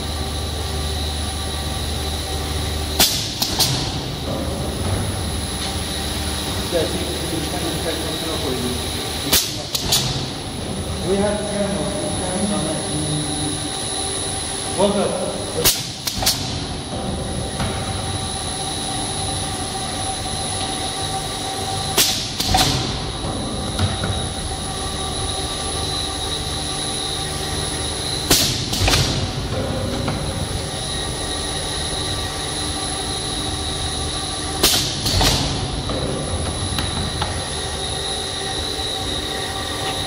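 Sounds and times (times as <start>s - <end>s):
machine humming with thin whine: 0.0s - 40.0s
pneumatic cutter double clack: 3.0s - 4.1s, 9.2s - 10.4s, 15.6s - 16.7s, 21.9s - 24.2s, 28.2s - 30.2s, 34.6s - 37.4s.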